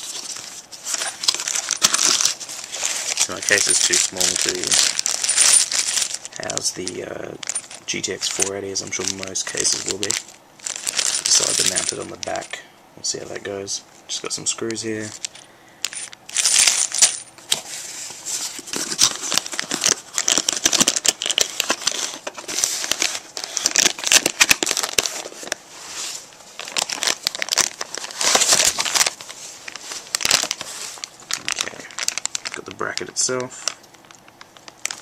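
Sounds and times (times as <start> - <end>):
plastic bags crinkling: 0.0 - 12.5, 14.8 - 17.6, 18.2 - 35.0.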